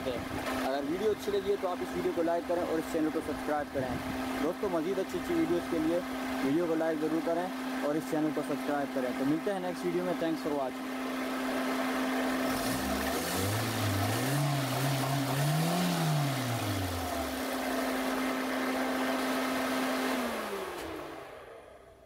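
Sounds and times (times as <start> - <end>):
car engine revving: 11.0 - 21.8
engine switched off winding down: 12.0 - 22.0.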